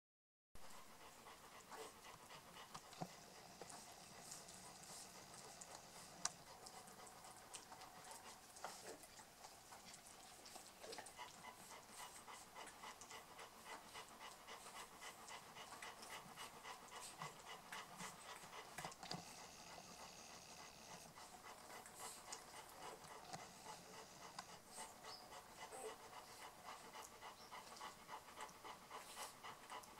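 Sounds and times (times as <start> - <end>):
puppies suckling: 1.0 - 29.9.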